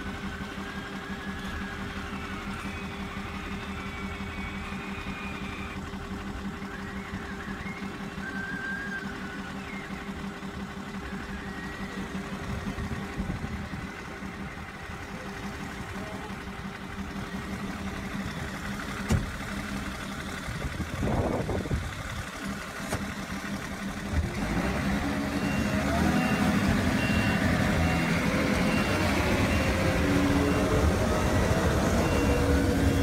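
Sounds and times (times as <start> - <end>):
toy engine idling drone: 0.0 - 22.8.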